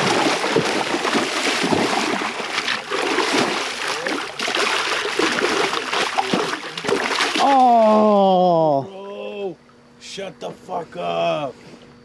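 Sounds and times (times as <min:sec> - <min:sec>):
fish thrashing in water: 0:00.0 - 0:08.0
water splashing and sloshing: 0:00.0 - 0:08.0.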